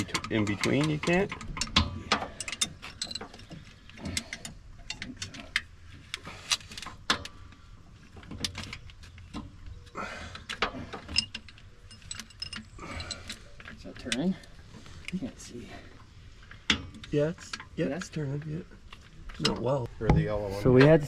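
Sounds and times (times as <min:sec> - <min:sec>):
allen key clicking on bolts: 0:00.0 - 0:05.7, 0:10.4 - 0:14.4.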